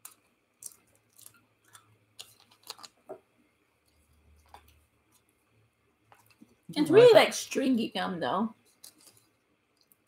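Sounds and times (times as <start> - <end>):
snack packet crinkling: 0.0 - 3.1, 8.8 - 10.0.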